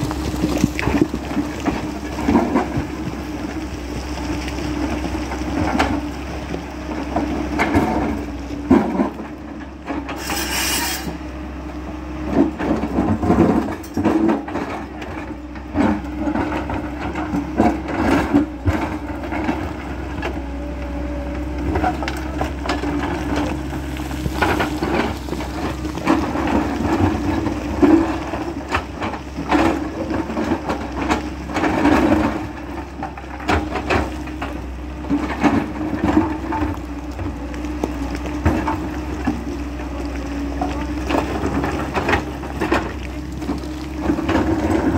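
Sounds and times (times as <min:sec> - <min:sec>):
rock clattering: 0:00.0 - 0:06.0, 0:21.6 - 0:44.9
diesel engine running: 0:00.0 - 0:44.9
bucket scraping against stone: 0:10.1 - 0:11.2, 0:21.7 - 0:29.0.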